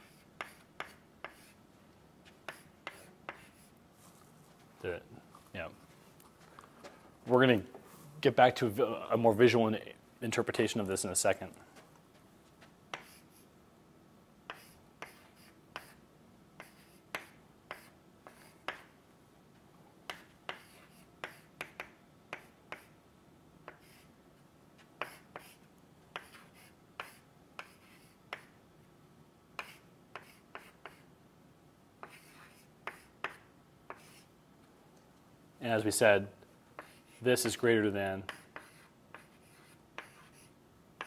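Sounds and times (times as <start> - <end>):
chalk tapping on blackboard: 0.0 - 1.6, 2.3 - 3.7, 12.9 - 13.3, 14.5 - 16.0, 16.6 - 18.9, 20.1 - 23.0, 23.6 - 24.1, 25.0 - 28.6, 29.6 - 31.0, 32.0 - 34.2, 36.8 - 37.6, 38.2 - 40.5.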